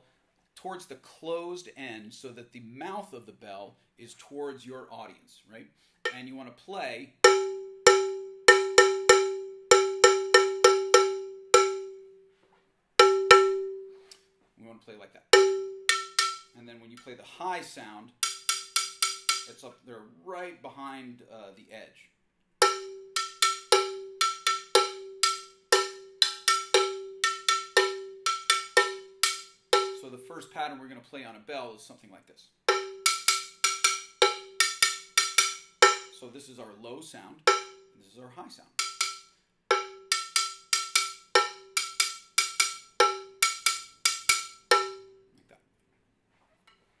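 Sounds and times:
cowbell struck with stick: 7.2s - 12.0s, 13.0s - 14.0s, 15.4s - 16.6s, 18.2s - 19.5s, 22.6s - 30.1s, 32.7s - 36.2s, 37.5s - 37.9s, 38.8s - 45.2s.

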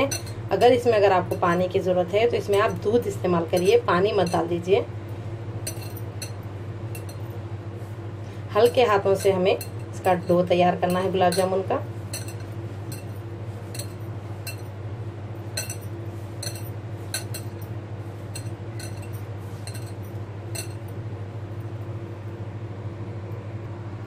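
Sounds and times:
bangles clinking against glass bowl: 0.0s - 1.5s, 2.5s - 2.9s, 3.6s - 4.4s, 5.6s - 6.4s, 7.0s - 7.3s, 8.6s - 14.8s, 15.6s - 17.7s, 18.3s - 20.9s
steady low hum: 0.0s - 24.0s.

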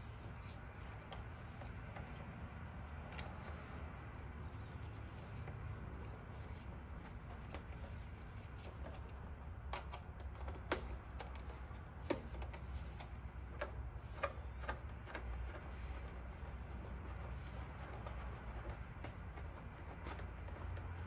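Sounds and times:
faint low hum: 0.0s - 21.0s
plastic panels clicking: 0.3s - 16.0s.

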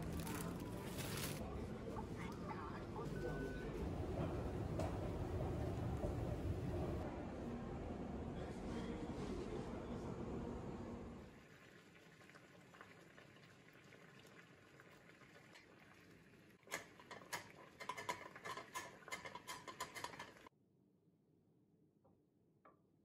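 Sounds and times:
water bubbling in saucepan: 11.3s - 19.1s.

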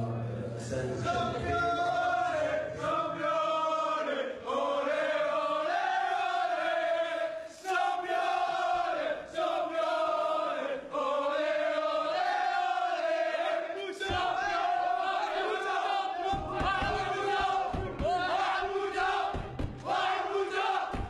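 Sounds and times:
group chanting in unison: 0.6s - 21.0s.

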